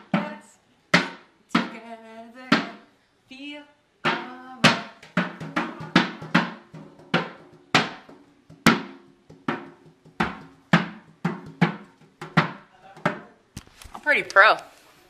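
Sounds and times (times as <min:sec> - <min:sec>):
hand drum beaten: 0:04.0 - 0:13.3.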